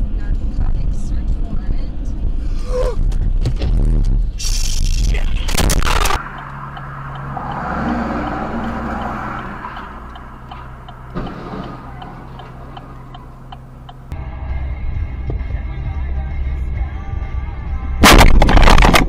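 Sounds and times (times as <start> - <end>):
engine humming: 0.0 - 19.0
car turn signal ticking: 6.2 - 14.2
vehicle collision thud: 10.6 - 13.0, 18.0 - 19.0.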